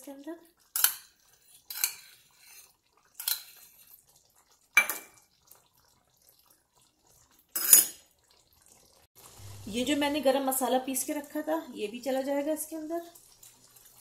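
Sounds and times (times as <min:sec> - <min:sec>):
utensils clinking on a pan: 0:00.8 - 0:03.8, 0:04.8 - 0:05.2, 0:07.6 - 0:08.0.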